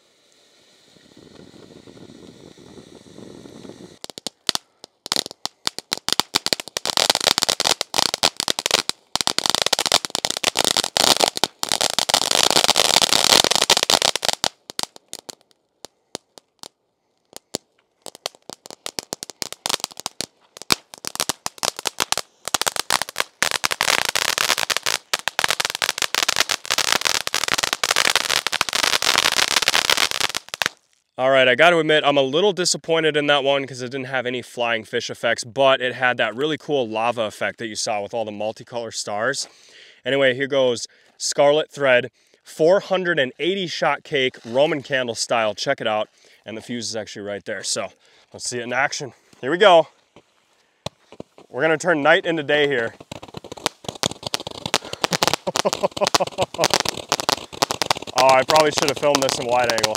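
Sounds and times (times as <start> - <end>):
firework hiss: 0.0 - 30.8, 52.0 - 59.9
firework crackling: 0.0 - 31.0, 50.8 - 59.9.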